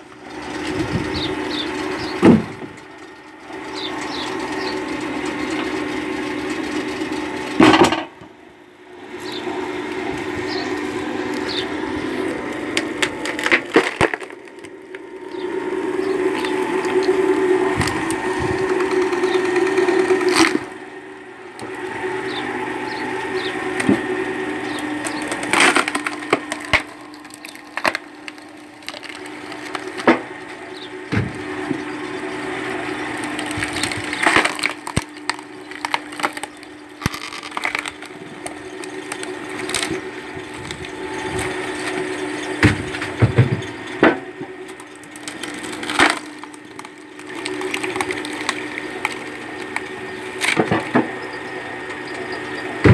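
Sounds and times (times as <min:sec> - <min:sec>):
log splitter humming: 0:00.0 - 0:52.9
wood cracking and splintering: 0:00.1 - 0:02.9, 0:09.2 - 0:20.8, 0:23.6 - 0:51.2.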